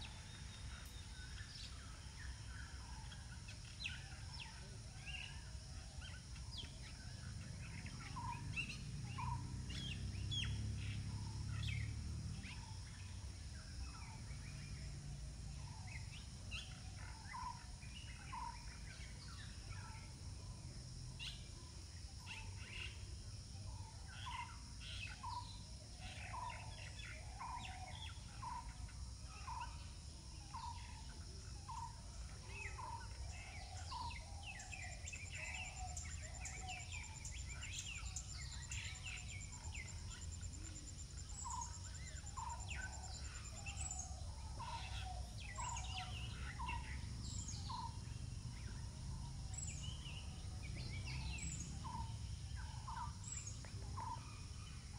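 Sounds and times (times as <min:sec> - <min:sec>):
birds chirping: 0:30.5 - 0:54.9.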